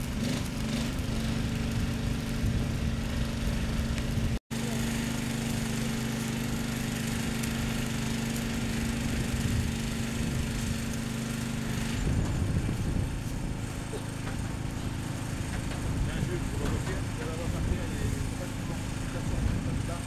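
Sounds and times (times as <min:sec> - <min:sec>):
arc welding crackling hiss: 0:00.0 - 0:20.0
welder buzzing hum: 0:00.0 - 0:20.0.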